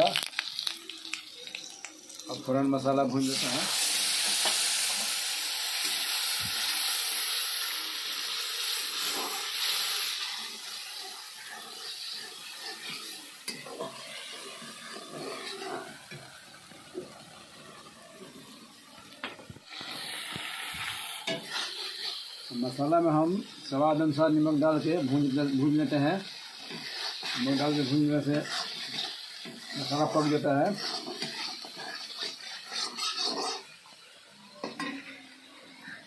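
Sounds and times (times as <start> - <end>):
paste sizzling in hot oil: 0.0 - 36.0
spatula scraping a steel pan: 11.0 - 16.0, 26.6 - 33.7.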